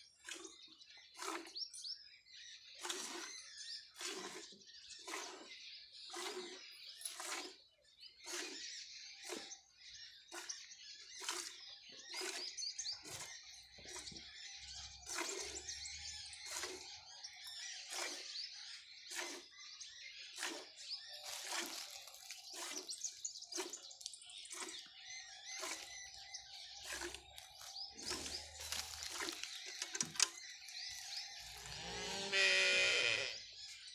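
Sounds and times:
birds chirping: 0.0s - 33.9s
milk squirting into steel bucket: 2.8s - 5.5s, 6.1s - 7.6s, 20.3s - 32.0s.

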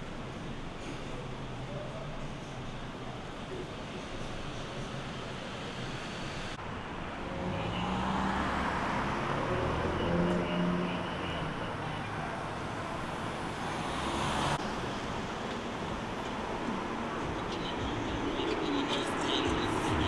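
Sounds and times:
background traffic noise: 0.0s - 20.0s
vehicle passing: 6.4s - 20.0s.

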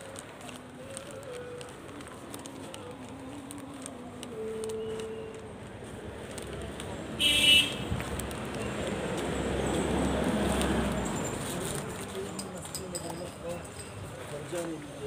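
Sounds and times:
car horn beep: 7.2s - 7.9s
car passing close: 7.8s - 12.2s.

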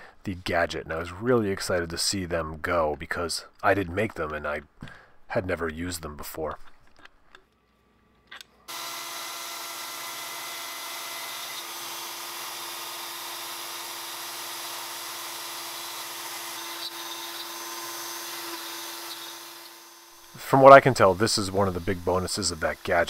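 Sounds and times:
router spindle cutting wood: 8.7s - 23.0s.

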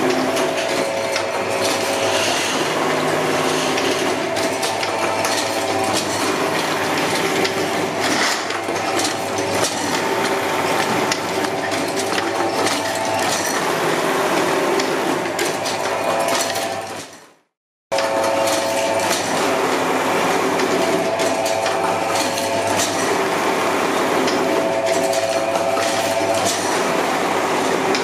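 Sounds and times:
machine humming: 0.0s - 16.8s, 17.9s - 28.0s
rapid clatter of knocks and clicks: 3.5s - 13.7s.

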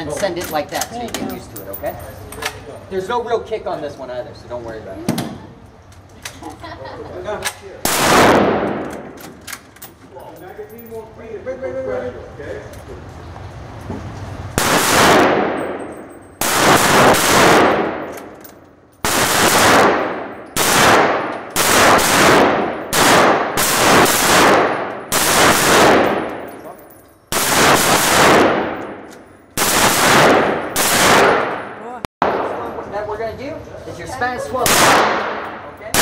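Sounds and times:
rifle shots reverberating indoors: 7.8s - 9.4s, 14.6s - 18.4s, 19.0s - 26.7s, 27.3s - 32.8s, 34.6s - 36.0s.

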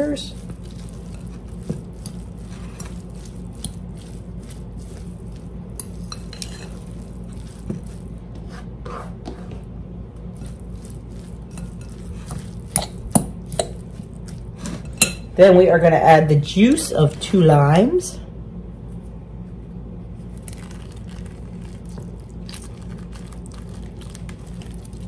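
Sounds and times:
steady low hum: 0.0s - 25.0s
fork scraping and clinking glass bowl: 5.8s - 8.0s, 10.4s - 15.3s.

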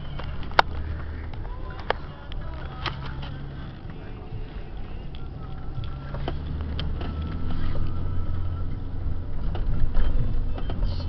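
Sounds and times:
off-road engine droning: 0.0s - 11.0s.

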